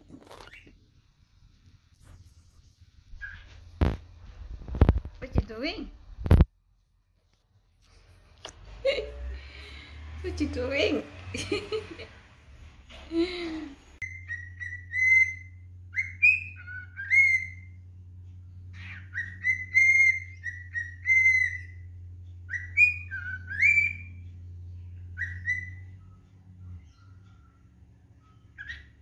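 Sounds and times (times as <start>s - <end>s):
cockatiel whistling: 3.2s - 3.5s, 14.0s - 17.8s, 18.7s - 24.2s, 25.1s - 29.0s.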